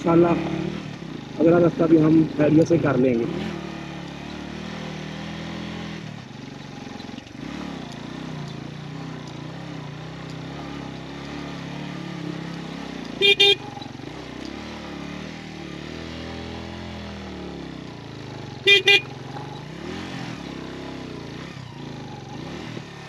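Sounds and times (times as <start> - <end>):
motorcycle engine running: 0.0 - 23.0
motorcycle horn beeps: 13.2 - 13.9, 18.6 - 19.2.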